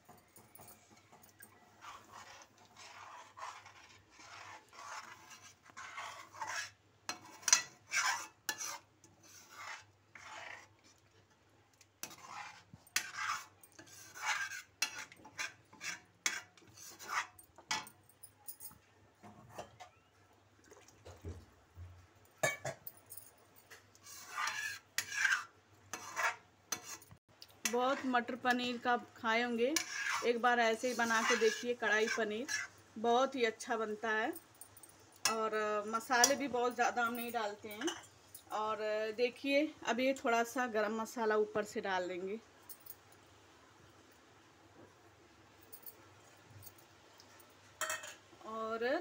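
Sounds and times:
steel ladle scraping metal pan: 1.5 - 11.0, 12.0 - 17.9, 24.0 - 32.8, 35.2 - 38.2, 47.8 - 48.2.

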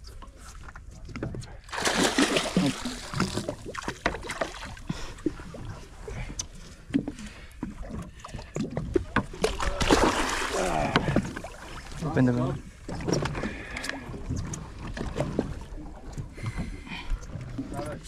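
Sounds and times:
fish thrashing knocks and slaps: 1.2 - 4.8, 7.8 - 11.6
water splashing: 1.7 - 6.3, 8.4 - 16.5.

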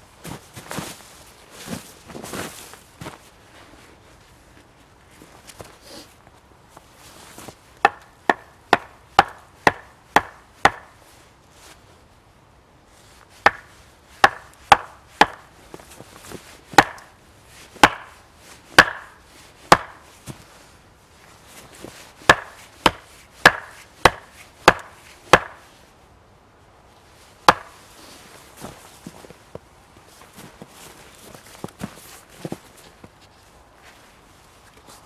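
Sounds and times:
axe striking wood: 7.8 - 10.9, 13.4 - 15.4, 16.8 - 17.1, 17.8 - 18.2, 18.8 - 20.0, 22.3 - 25.6, 27.5 - 27.8.

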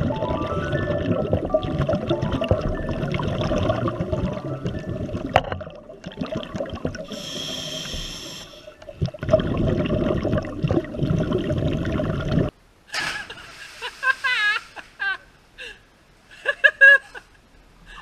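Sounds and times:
bubbles gurgling: 0.0 - 12.5
diver breathing through regulator: 7.0 - 8.8.

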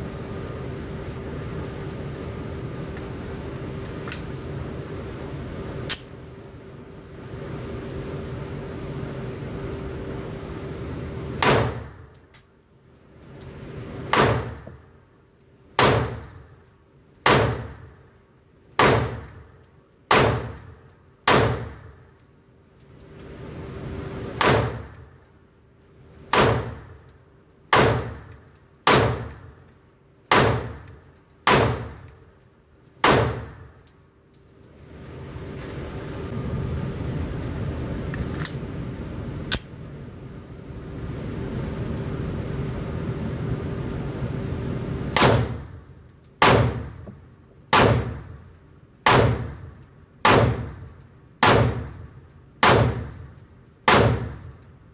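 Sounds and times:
ventilation hum: 0.0 - 54.9
pistol shots indoors: 11.4 - 12.2, 14.0 - 14.9, 15.7 - 17.9, 18.7 - 22.2, 24.4 - 25.1, 26.3 - 27.0, 27.7 - 32.2, 33.0 - 33.7, 45.1 - 47.0, 47.7 - 54.7.

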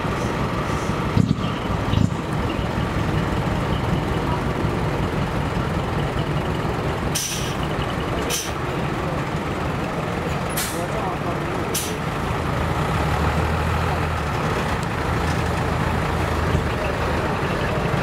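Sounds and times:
diesel truck engine rumbling: 0.0 - 18.0
air brake hisses: 7.1 - 7.6, 8.3 - 8.6, 11.7 - 12.0.

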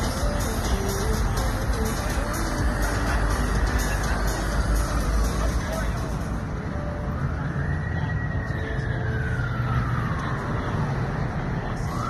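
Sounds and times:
street noise: 0.0 - 12.0
emergency vehicle siren wailing: 4.4 - 12.0.

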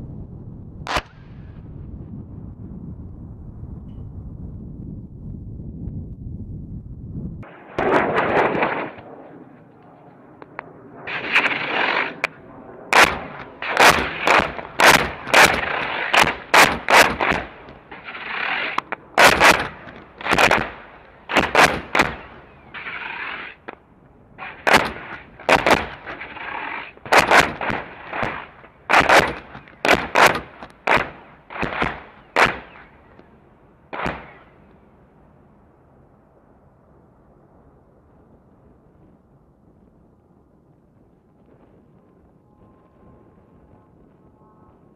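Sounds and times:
sharp explosions: 7.4 - 10.2, 10.9 - 33.2, 33.9 - 34.7
hissing rushes: 11.0 - 23.7, 24.4 - 33.0.

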